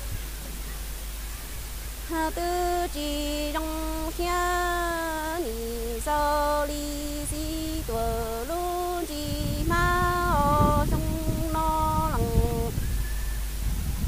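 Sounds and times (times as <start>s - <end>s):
woman singing unaccompanied: 2.0s - 12.8s.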